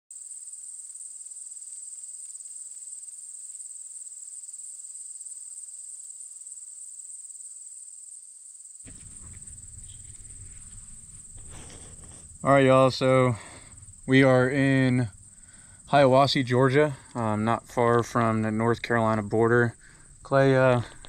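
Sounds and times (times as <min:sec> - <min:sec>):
night insects trilling: 0:00.1 - 0:21.0
low rustling rumble: 0:08.9 - 0:21.0.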